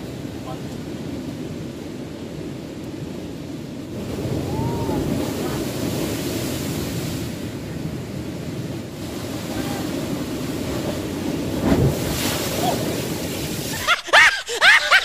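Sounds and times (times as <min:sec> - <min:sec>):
wind on microphone: 0:00.0 - 0:13.9
wave crashing against rocks: 0:00.0 - 0:15.0
surf breaking on rocks: 0:03.9 - 0:15.0.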